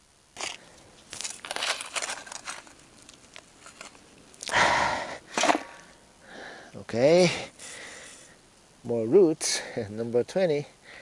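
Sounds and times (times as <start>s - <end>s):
digging in soil: 0.4s - 6.0s.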